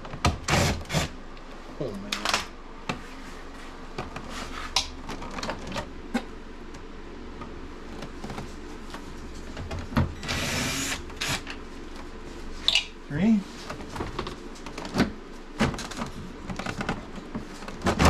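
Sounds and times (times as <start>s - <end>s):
cordless drill running: 0.5s - 1.1s, 10.2s - 11.5s.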